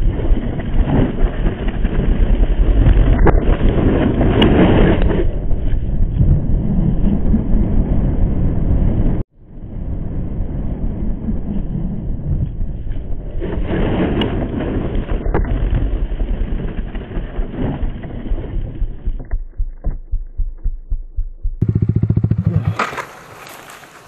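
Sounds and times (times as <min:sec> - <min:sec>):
wind noise: 0:00.0 - 0:22.7
motorcycle engine: 0:16.4 - 0:24.0.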